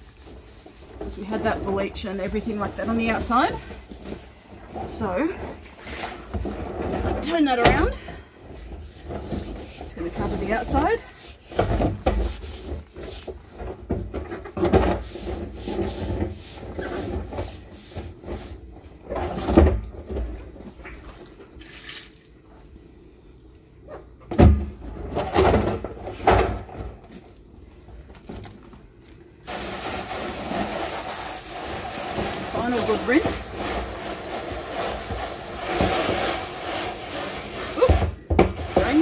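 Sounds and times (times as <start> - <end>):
hands rubbing plastic drum: 0.0 - 7.7, 8.4 - 18.7, 29.5 - 39.0
hose spraying water: 29.5 - 39.0.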